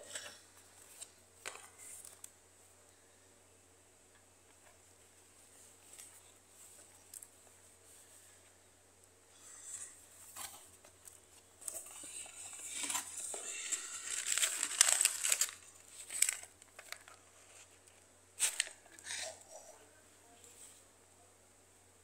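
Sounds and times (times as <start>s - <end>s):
cardboard and plastic packet rustling: 10.2s - 19.3s.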